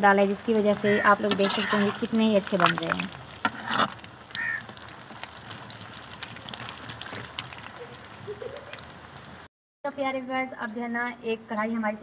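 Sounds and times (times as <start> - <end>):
deep-frying sizzle: 0.0 - 9.5.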